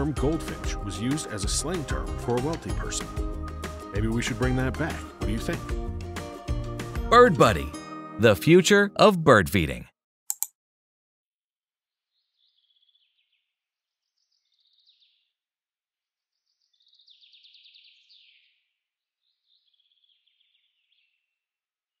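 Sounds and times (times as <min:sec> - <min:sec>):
sharp clicks: 0:10.3 - 0:10.5.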